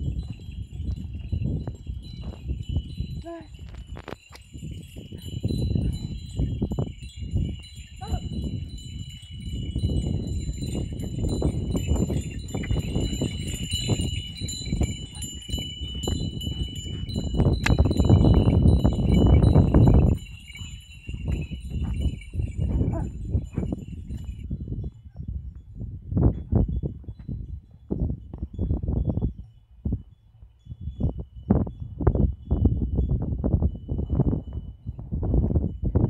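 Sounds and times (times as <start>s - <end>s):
small bells jingling: 0.0s - 24.6s.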